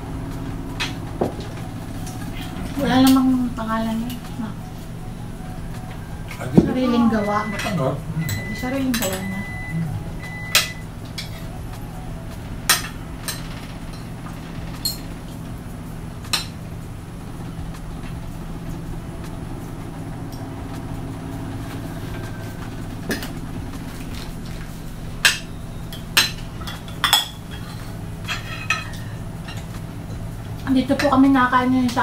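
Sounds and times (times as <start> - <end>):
steady low hum: 0.0 - 32.0
cutlery clinking on plates: 25.2 - 29.7.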